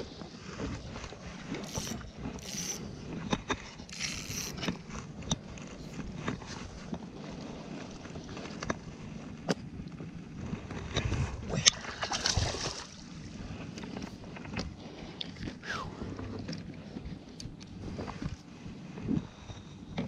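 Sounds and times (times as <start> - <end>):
water noise: 0.0 - 19.5
wind: 0.0 - 20.0
reel rasping bursts: 1.5 - 3.0, 3.7 - 5.0
fishing reel clicks: 1.6 - 2.9, 3.8 - 4.8.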